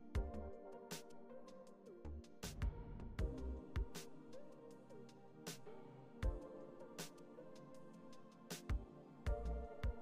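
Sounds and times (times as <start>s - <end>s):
music with kick drum beat: 2.4s - 4.2s, 6.2s - 7.2s, 8.5s - 10.0s.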